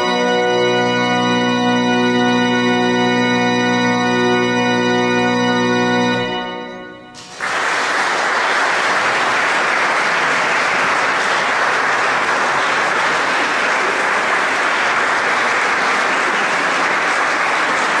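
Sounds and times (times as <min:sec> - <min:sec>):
audience applauding: 0:07.2 - 0:18.0.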